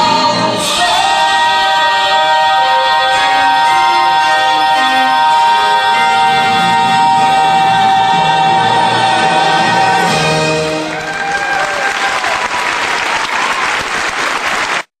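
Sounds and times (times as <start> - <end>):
singers holding final chord: 0.0 - 11.8
audience applause: 9.2 - 14.9.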